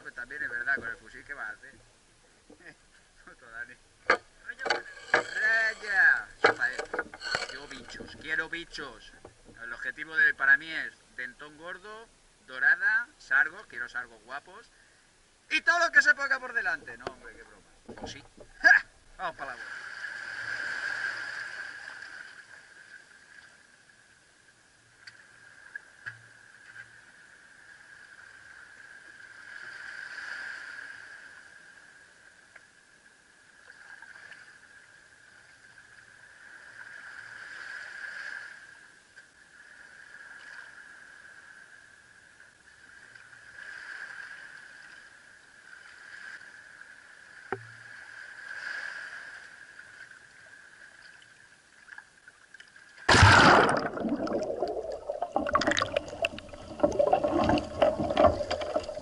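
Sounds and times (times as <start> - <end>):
small waves washing on shore: 3.4 - 11.3, 15.5 - 24.1, 24.7 - 32.5, 36.0 - 59.0
underwater bubbling and churning: 3.8 - 10.0, 16.6 - 59.0
loud splash: 53.1 - 59.0.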